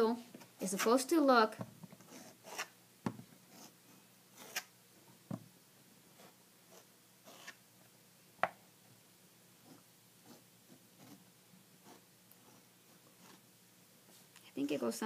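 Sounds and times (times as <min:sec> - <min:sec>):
tool scraping clay: 0:04.4 - 0:04.7, 0:06.2 - 0:07.6.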